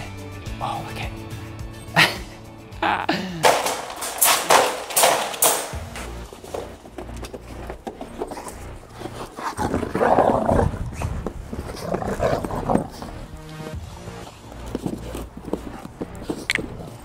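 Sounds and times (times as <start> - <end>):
dogs growling while wrestling: 6.4 - 17.0.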